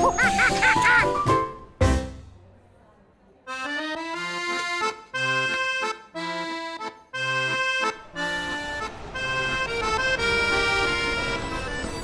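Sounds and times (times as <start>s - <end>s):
accordion playing lively tune: 3.5s - 12.0s.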